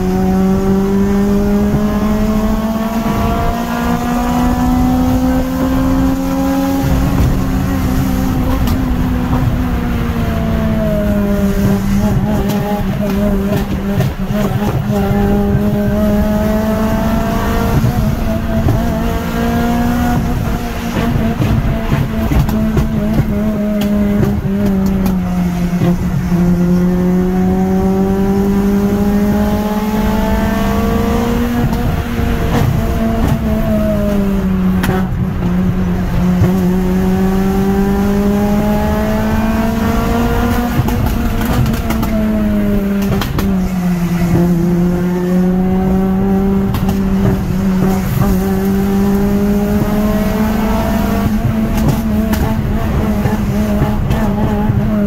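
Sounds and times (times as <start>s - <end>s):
car engine accelerating: 0.0s - 55.0s
road noise: 0.0s - 55.0s.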